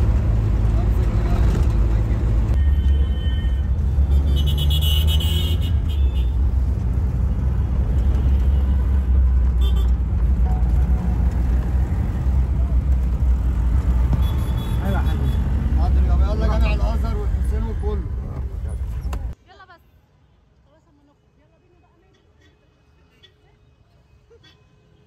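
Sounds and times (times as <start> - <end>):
engine and road rumble: 0.0 - 19.4
car horn honking: 2.6 - 6.4, 9.6 - 10.0, 14.1 - 15.8.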